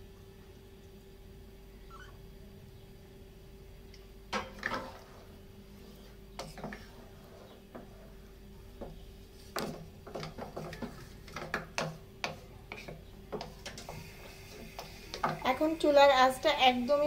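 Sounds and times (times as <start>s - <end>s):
spatula stirring in metal pot: 4.4s - 16.5s.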